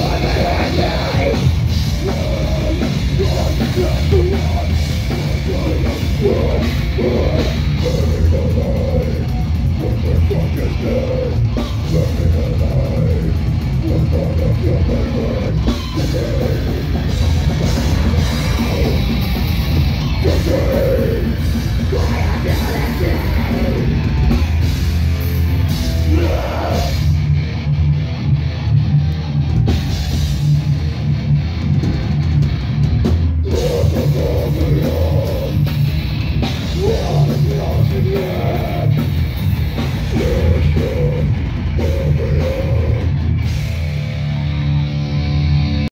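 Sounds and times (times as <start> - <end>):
distorted electric guitar: 0.0 - 45.9
drum kit pounding: 0.0 - 45.9
vocalist shouting: 20.2 - 24.0, 25.9 - 27.1.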